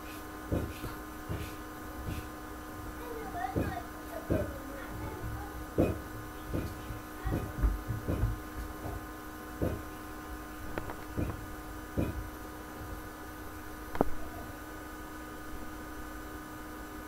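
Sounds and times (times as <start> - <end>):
electrical hum: 0.0 - 17.0
soft low thuds: 0.5 - 9.9, 10.7 - 13.1.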